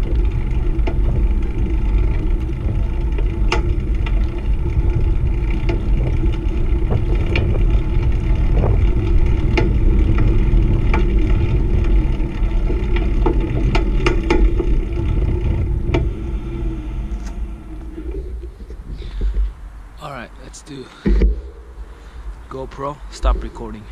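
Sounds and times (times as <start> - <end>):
bike clicks and rattles: 0.0 - 20.0
tyres rolling on asphalt: 0.0 - 23.9
wind buffeting microphone: 0.0 - 23.9.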